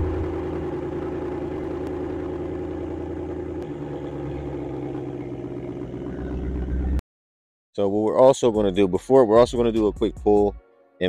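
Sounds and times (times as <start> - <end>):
car engine idling: 0.0 - 7.0.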